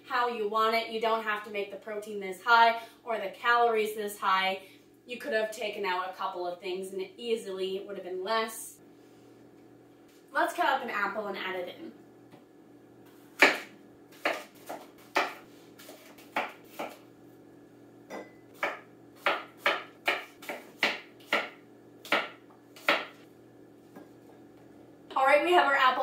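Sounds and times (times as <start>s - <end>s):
knife chopping on cutting board: 13.1s - 17.0s, 18.2s - 23.2s.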